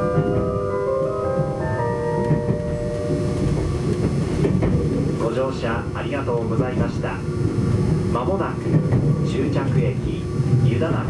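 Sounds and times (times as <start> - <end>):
train onboard chime melody: 0.0 - 7.5
train rumbling on track: 0.0 - 11.0.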